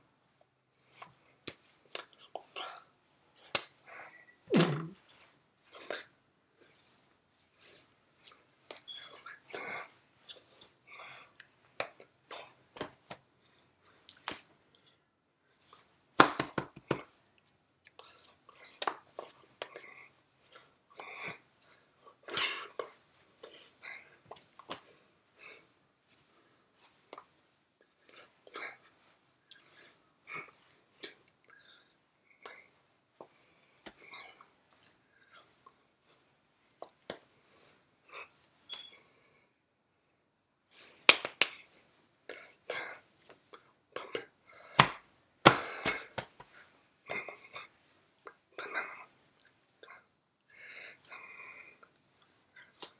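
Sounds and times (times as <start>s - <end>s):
hands smacking: 1.0s - 2.5s, 3.4s - 3.8s, 11.8s - 12.1s, 12.7s - 13.2s, 14.1s - 14.5s, 16.2s - 17.2s, 18.7s - 19.7s, 40.8s - 41.7s, 44.7s - 47.4s
soft breaths: 17.9s - 44.8s, 45.5s - 52.9s.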